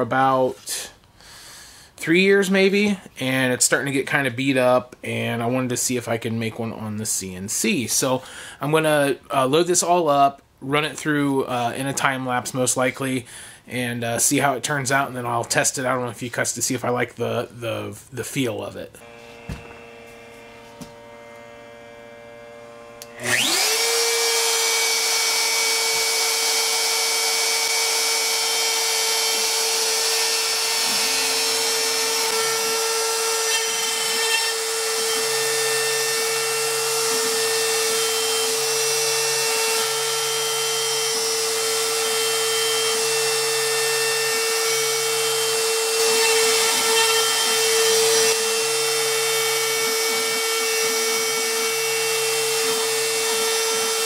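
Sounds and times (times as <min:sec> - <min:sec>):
stepper motors humming: 0:19.0 - 0:24.7
router whining at high pitch: 0:19.0 - 0:54.0.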